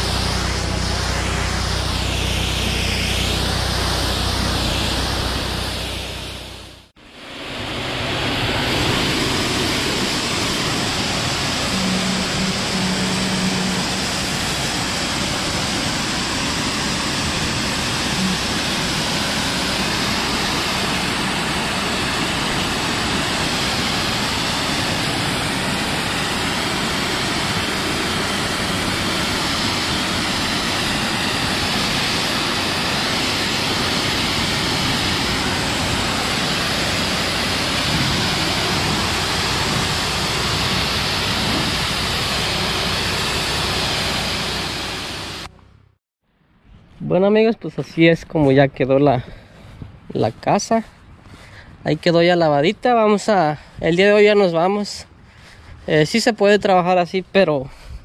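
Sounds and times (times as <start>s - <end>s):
pressure washer spraying: 0.0s - 6.8s, 7.5s - 45.5s.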